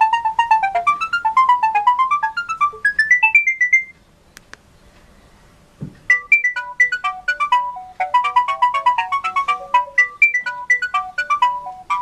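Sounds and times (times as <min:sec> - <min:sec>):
phone ringtone beeping melody: 0:00.0 - 0:04.0, 0:06.1 - 0:12.0
soft thump: 0:05.8 - 0:06.1.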